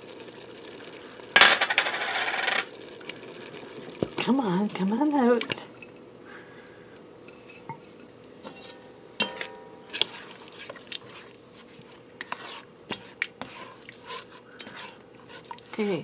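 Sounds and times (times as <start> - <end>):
spatula scraping in pot: 7.2 - 16.0
utensil clinking against pot: 8.5 - 9.7.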